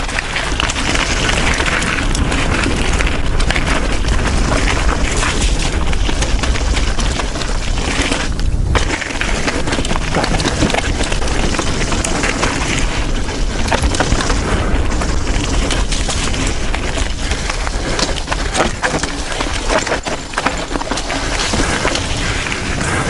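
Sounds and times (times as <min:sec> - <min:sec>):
bike rattling on rough trail: 0:00.0 - 0:23.0
wind rush on microphone: 0:00.0 - 0:23.0.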